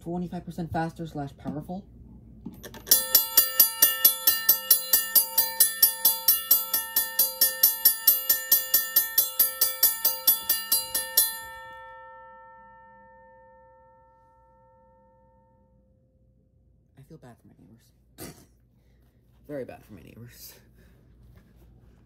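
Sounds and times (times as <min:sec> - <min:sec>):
railroad crossing bell ringing: 0:02.8 - 0:15.7.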